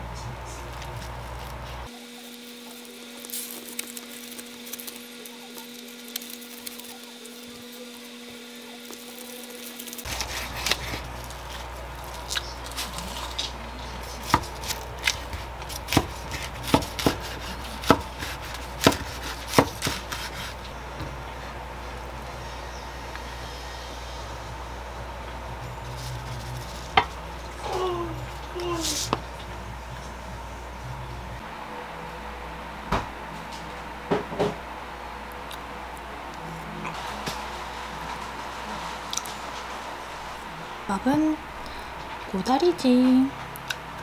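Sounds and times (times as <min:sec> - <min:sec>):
knife chopping on cutting board: 0:14.2 - 0:20.6.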